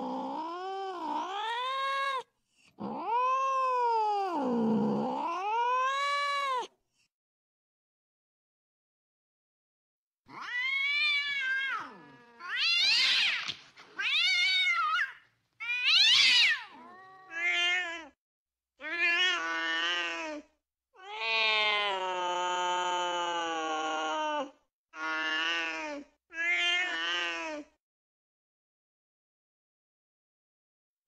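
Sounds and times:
cats yowling: 2.8s - 6.7s, 10.3s - 18.2s, 21.0s - 24.3s.

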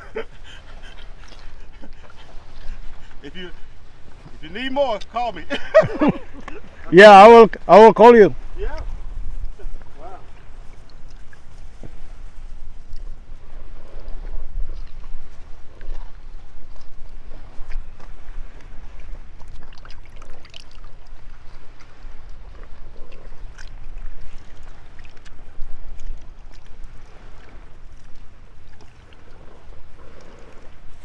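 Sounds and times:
wind buffeting microphone: 0.0s - 31.0s
small water splashes: 13.8s - 31.0s.

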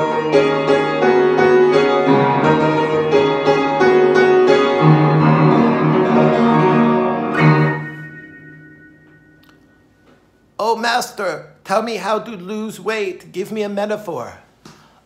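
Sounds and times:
piano playing: 0.0s - 11.3s.

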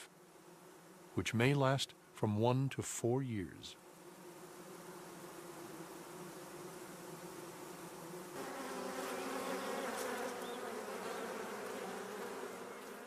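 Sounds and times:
honeybees buzzing: 0.0s - 1.2s, 3.8s - 13.0s.

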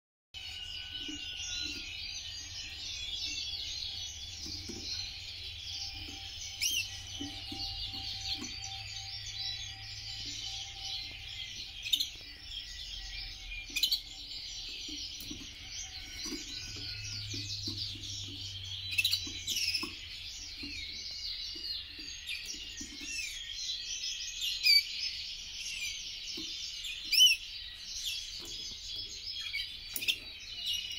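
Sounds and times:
canary singing trills: 0.4s - 30.9s.

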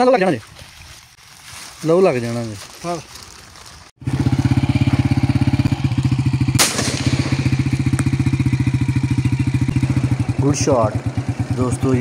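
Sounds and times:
engine chugging: 4.0s - 12.0s
shotgun shot: 6.5s - 7.9s.

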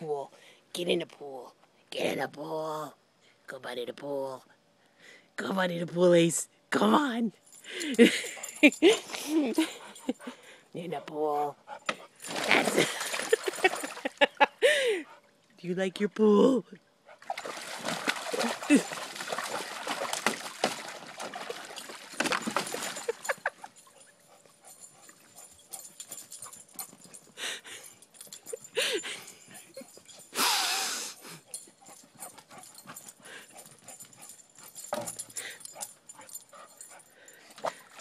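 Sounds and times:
water splashing in a pool: 12.2s - 14.2s, 17.2s - 23.5s, 37.6s - 38.0s.

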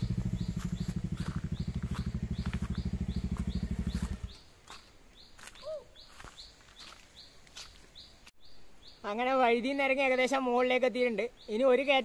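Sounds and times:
motorcycle engine running: 0.0s - 4.4s
faint high bird chirps: 0.0s - 4.5s, 5.1s - 12.0s.

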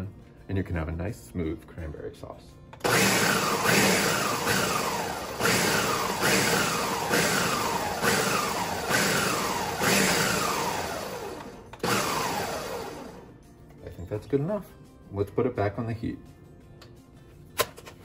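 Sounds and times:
blender pulsing: 2.8s - 13.3s.

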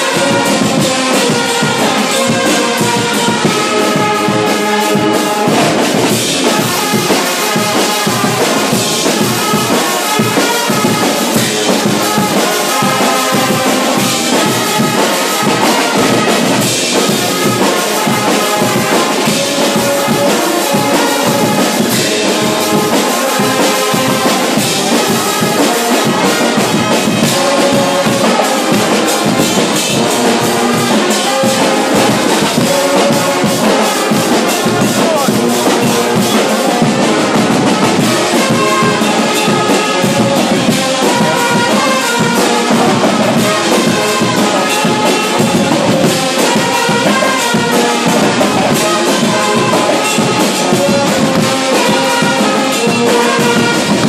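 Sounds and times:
brass band with drums: 0.0s - 54.0s.

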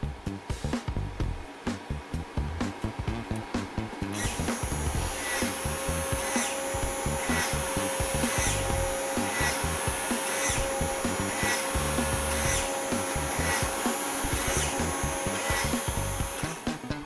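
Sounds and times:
small motor whirring: 4.1s - 16.8s.

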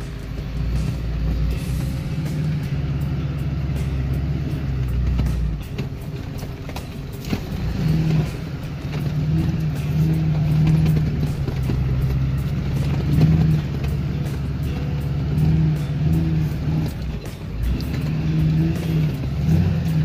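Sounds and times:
truck engine rumble inside cab: 0.0s - 20.0s.

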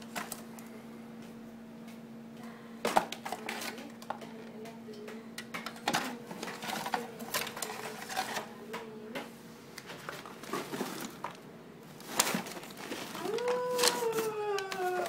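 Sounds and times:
low steady hum: 0.0s - 15.0s
clicks taps and rustles of handling: 2.9s - 11.4s.

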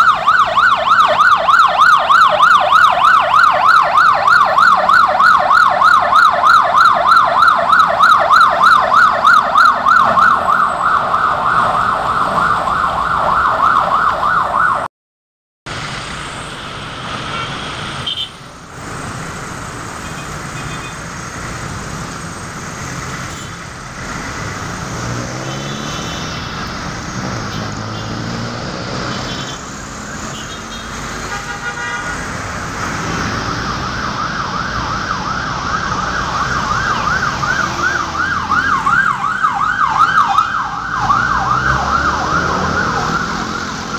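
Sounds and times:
city traffic noise: 0.0s - 14.9s, 15.6s - 43.9s
emergency siren wailing: 0.0s - 14.9s, 19.6s - 43.9s
car horn toots: 30.3s - 32.2s.

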